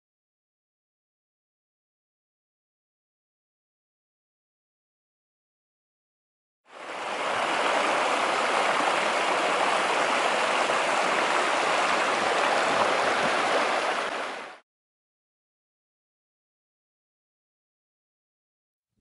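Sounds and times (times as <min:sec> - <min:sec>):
creek rushing over rocks: 0:06.7 - 0:14.6.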